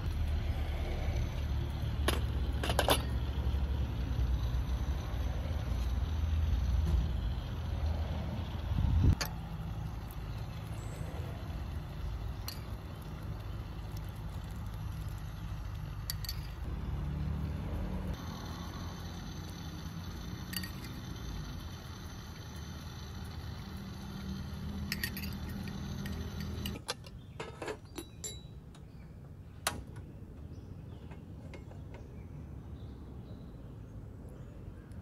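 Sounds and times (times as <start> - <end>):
metal spoon clinking on pot: 16.0 - 16.6, 24.9 - 26.8, 28.0 - 28.6.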